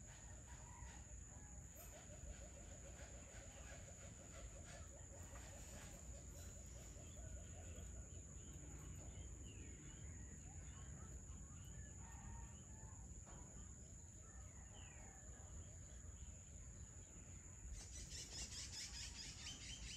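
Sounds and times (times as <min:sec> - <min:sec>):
bird chirps: 0:14.6 - 0:19.9.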